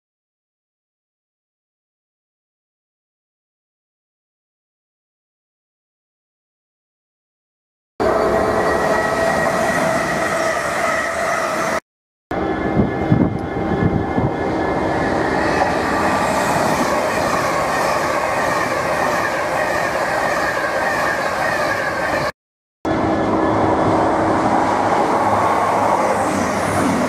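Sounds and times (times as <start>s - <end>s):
electric train whine: 8.0s - 22.3s, 22.9s - 27.0s
train passing at speed: 8.0s - 22.3s, 22.9s - 27.0s.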